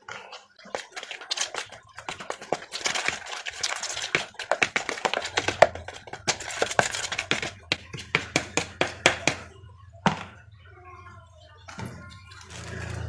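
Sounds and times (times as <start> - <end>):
spoon scraping plastic bowl: 0.0 - 9.4.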